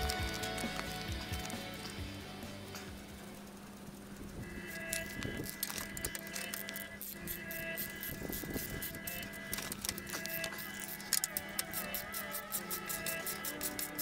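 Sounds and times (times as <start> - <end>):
background music with held tones: 0.0 - 3.7
socket ratchet clicking: 4.7 - 14.0.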